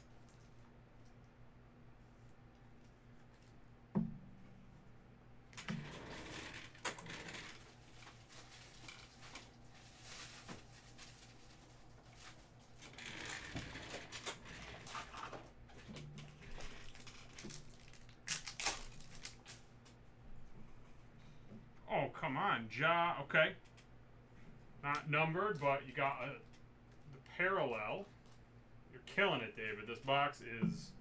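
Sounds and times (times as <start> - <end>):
wrapper crinkling: 16.2 - 19.7
cards clicking and riffling: 16.2 - 20.0.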